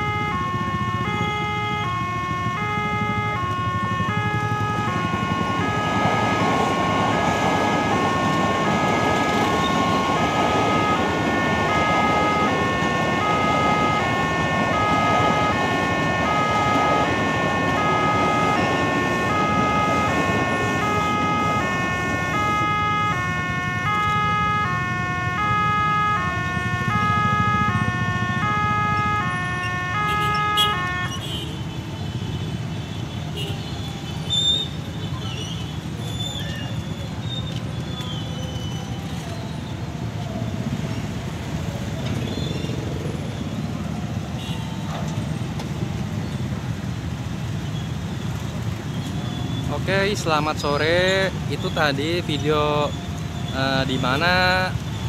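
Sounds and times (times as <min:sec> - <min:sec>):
level crossing two-tone alarm: 0:00.0 - 0:31.2
electric train rumbling past: 0:02.0 - 0:31.1.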